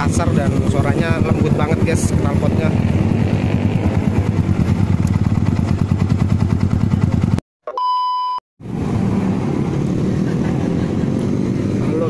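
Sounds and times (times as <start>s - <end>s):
motorcycle engine idling: 0.0s - 7.4s
short electronic beep: 7.7s - 8.4s.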